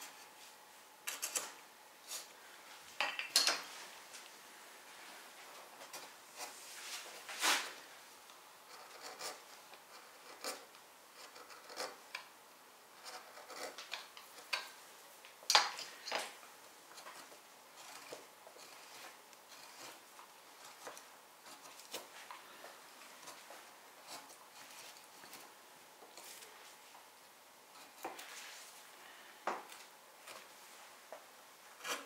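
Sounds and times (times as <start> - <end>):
blade scraping wood: 8.7 - 12.1, 13.0 - 14.7, 16.9 - 25.5, 31.8 - 32.0.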